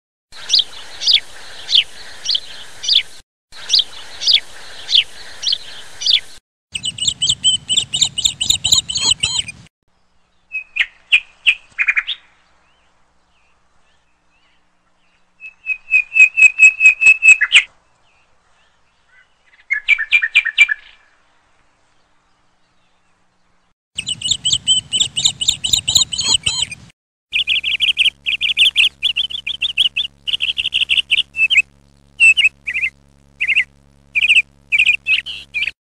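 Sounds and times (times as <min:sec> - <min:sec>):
bird chirping and trills: 0:06.8 - 0:21.1, 0:22.0 - 0:35.8.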